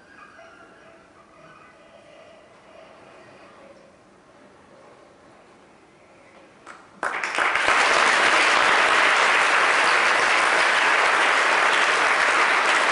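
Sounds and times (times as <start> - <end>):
audience applauding: 6.7 - 12.9.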